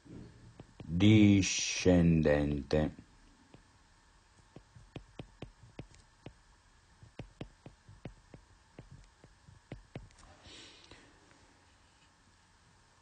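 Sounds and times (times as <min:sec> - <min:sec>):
stylus tapping touchscreen: 0:00.5 - 0:01.1, 0:04.5 - 0:06.4, 0:07.0 - 0:10.2.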